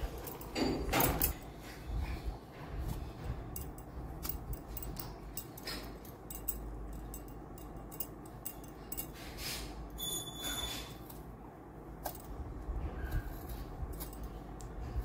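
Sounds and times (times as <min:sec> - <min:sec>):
vegetable peeler scraping gourd skin: 0:13.0 - 0:14.3.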